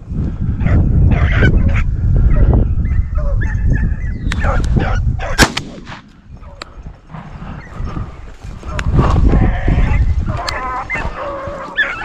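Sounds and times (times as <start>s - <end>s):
hounds baying: 0.6s - 5.4s, 6.3s - 12.0s
sharp snap: 5.4s - 6.1s.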